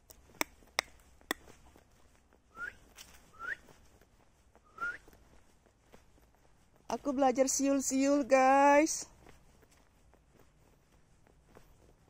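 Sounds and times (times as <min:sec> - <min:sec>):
person whistling rising notes: 0:02.5 - 0:03.6, 0:04.7 - 0:05.0.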